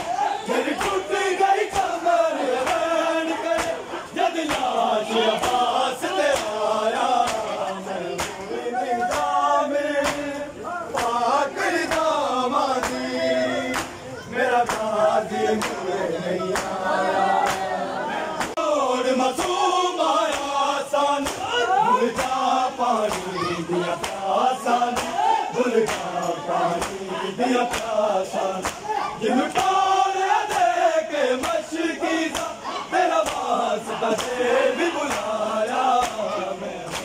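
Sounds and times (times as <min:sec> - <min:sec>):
men chanting in unison: 0:00.0 - 0:37.0
hands slapping chests: 0:07.2 - 0:07.5, 0:10.9 - 0:11.2, 0:23.0 - 0:23.3, 0:24.0 - 0:24.3, 0:24.9 - 0:25.2, 0:25.8 - 0:26.1, 0:27.7 - 0:28.0, 0:28.6 - 0:28.8, 0:33.2 - 0:33.5, 0:35.1 - 0:35.3.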